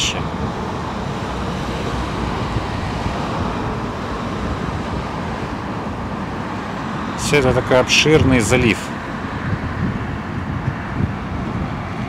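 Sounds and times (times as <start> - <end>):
steady rumbling background noise: 0.0 - 12.0.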